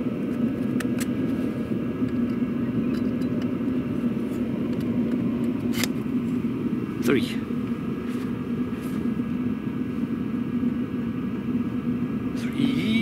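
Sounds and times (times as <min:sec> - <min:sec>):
heater exhaust drone: 0:00.0 - 0:13.0.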